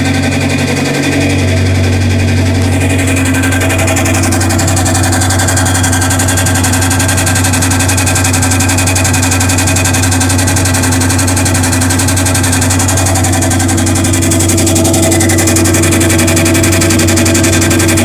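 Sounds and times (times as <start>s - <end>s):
washing machine motor hum: 0.0s - 18.0s.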